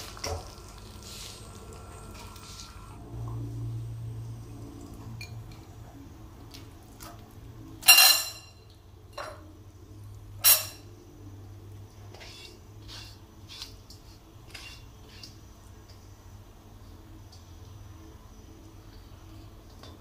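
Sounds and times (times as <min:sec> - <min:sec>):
metal kitchenware clinking: 0:07.8 - 0:09.4, 0:10.4 - 0:10.8.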